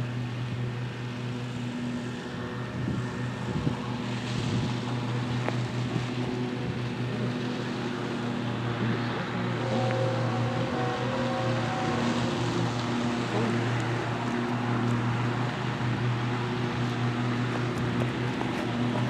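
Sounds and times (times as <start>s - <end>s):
distant diesel locomotives droning: 0.0s - 19.0s
wind noise on microphone: 2.6s - 7.0s.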